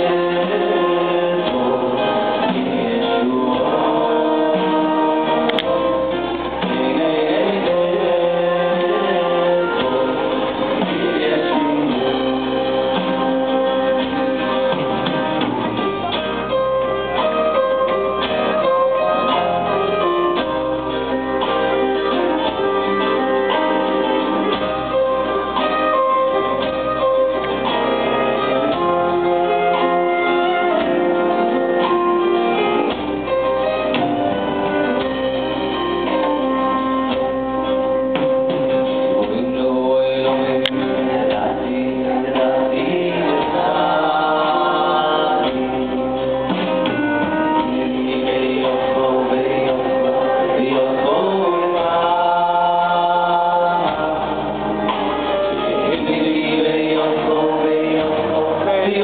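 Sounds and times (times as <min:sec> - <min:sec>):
man singing into a microphone: 0:00.0 - 0:14.8, 0:39.0 - 0:59.0
bowed cello: 0:00.0 - 0:59.0.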